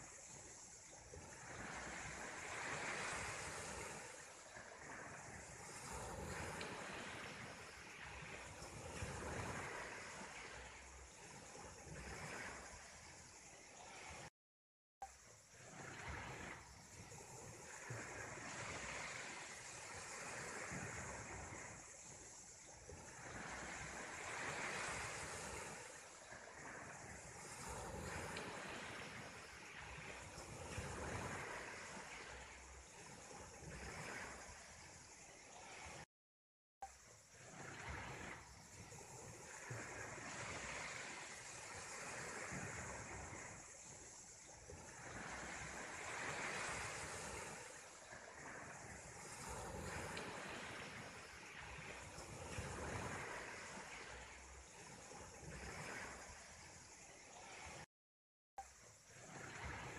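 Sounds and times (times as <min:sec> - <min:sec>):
sea surf rushing: 0:00.0 - 0:14.3, 0:37.4 - 0:57.8
wind: 0:00.0 - 0:14.3, 0:15.0 - 0:36.1, 0:36.8 - 0:57.9, 0:58.6 - 0:59.9
surf: 0:15.5 - 0:36.0, 0:36.9 - 0:57.9.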